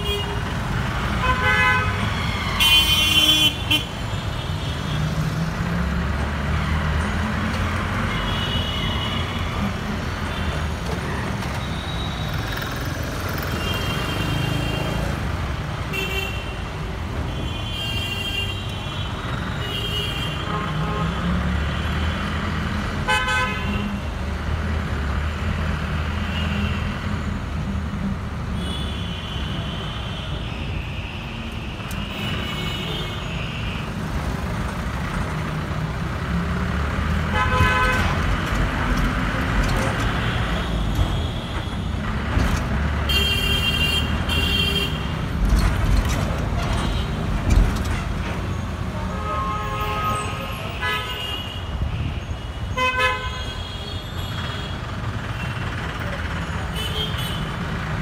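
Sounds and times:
road traffic rumble: 0.0s - 58.0s
vehicle horns honking: 1.2s - 3.9s, 23.1s - 24.0s, 37.2s - 38.2s, 49.0s - 54.8s.

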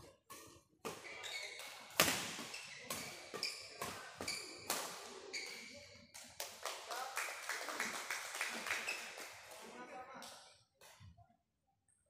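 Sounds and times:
rackets smacking shuttlecock: 1.9s - 4.9s.

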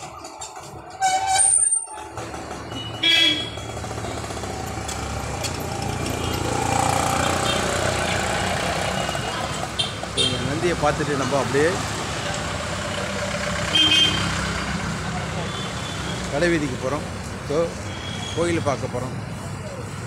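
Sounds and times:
vehicle horn honking: 2.8s - 3.6s, 8.9s - 10.5s, 13.7s - 14.4s
vehicle driving past: 3.7s - 9.7s.

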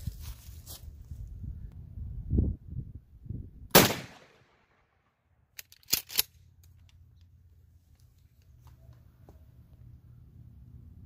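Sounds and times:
shotgun shot with echo: 3.7s - 4.8s.

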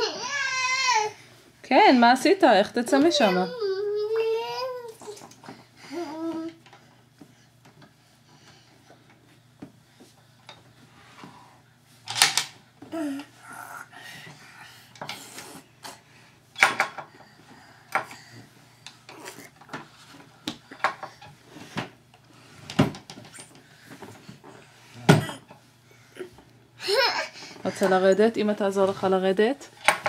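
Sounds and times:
child's vocal sound: 5.8s - 6.6s.

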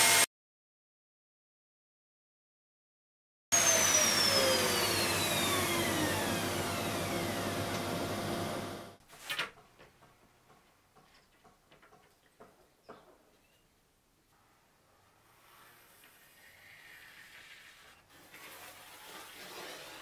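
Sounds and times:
dust extractor running: 3.6s - 9.0s
router whine spinning down: 3.6s - 9.0s
handling knocks and rustles: 9.0s - 13.7s.

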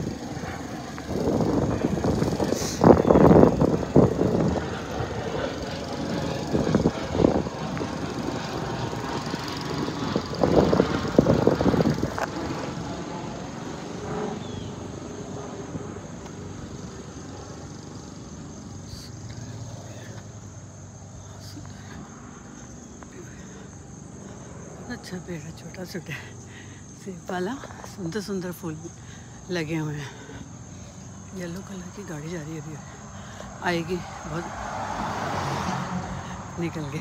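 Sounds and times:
wind buffeting microphone: 0.0s - 17.0s
high insect drone: 0.0s - 37.0s.

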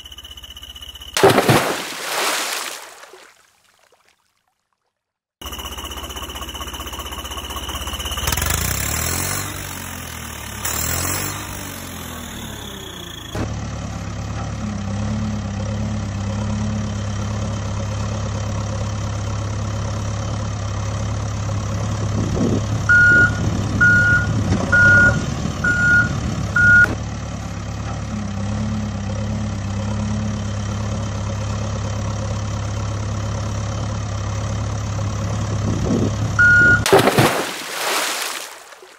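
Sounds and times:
diesel engine idling: 5.4s - 36.9s
reversing beeps: 22.9s - 26.9s, 36.4s - 36.9s.

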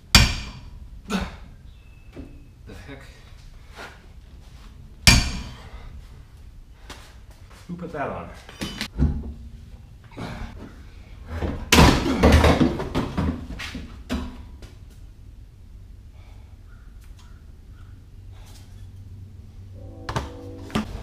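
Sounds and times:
banging and scraping under car: 8.3s - 14.6s.

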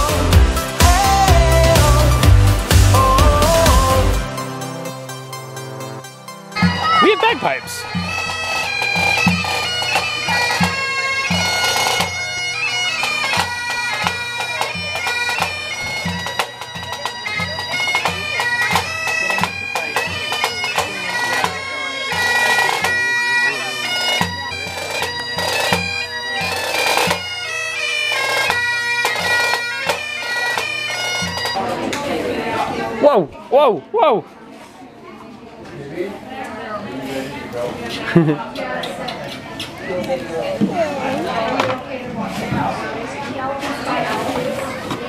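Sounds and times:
bagpipes playing a tune: 1.2s - 31.8s.

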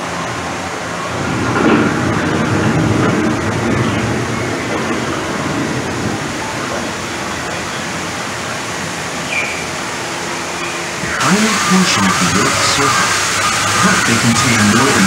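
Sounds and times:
rushing of falling water: 0.0s - 15.0s.

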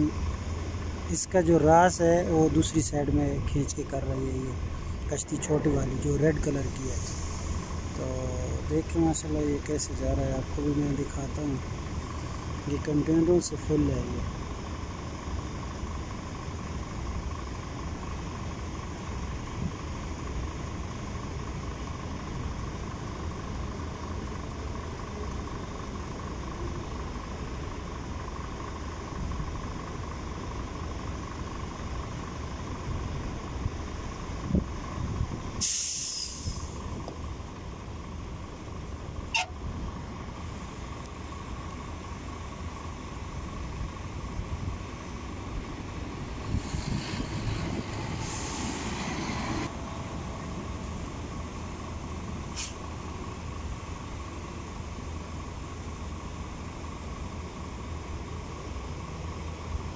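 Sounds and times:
heavy engines rumbling: 0.0s - 59.9s
air brake hiss: 6.9s - 7.7s, 35.6s - 36.8s, 48.2s - 49.1s, 52.5s - 52.8s.

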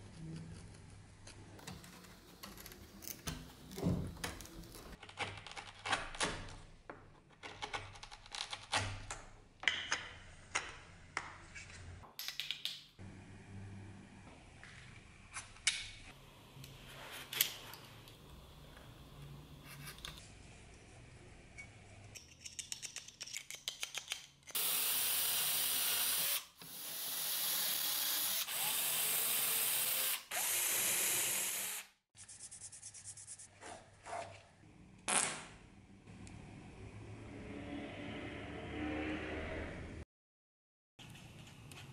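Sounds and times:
cordless drill drilling: 24.6s - 31.9s.

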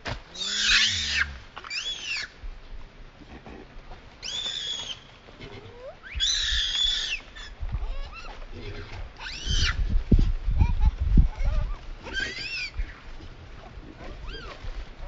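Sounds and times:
infant monkey distress cries: 0.3s - 2.4s, 4.2s - 8.4s, 9.2s - 9.8s, 10.6s - 13.0s, 14.2s - 14.6s.

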